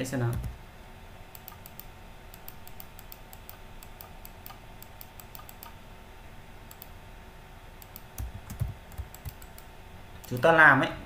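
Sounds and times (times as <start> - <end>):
computer mouse clicking: 1.3 - 5.8, 6.7 - 6.9, 7.8 - 10.5.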